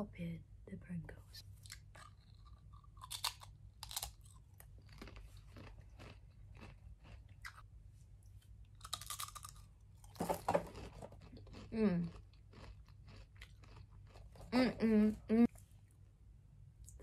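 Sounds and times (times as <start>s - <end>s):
chip being crunched: 8.8s - 9.7s.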